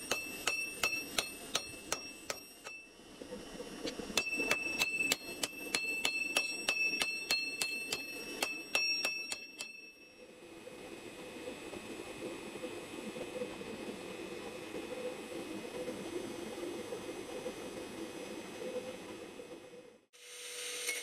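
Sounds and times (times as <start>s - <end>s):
hammer striking on anvil: 0.0s - 2.9s, 4.2s - 10.1s.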